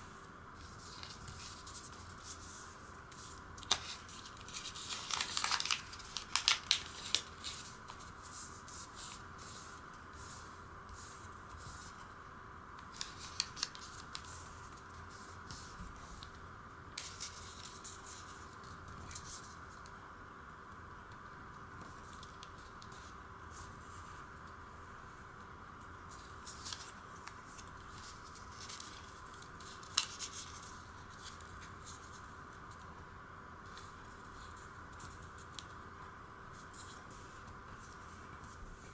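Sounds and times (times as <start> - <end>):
steady hiss: 0.0 - 38.9
paper rustling and crackling: 0.6 - 9.8, 12.9 - 16.4, 26.1 - 32.3.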